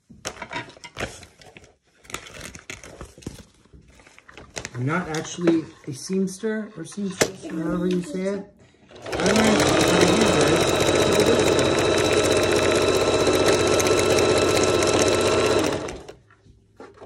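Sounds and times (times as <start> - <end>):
sewing machine stitching: 8.9 - 16.2.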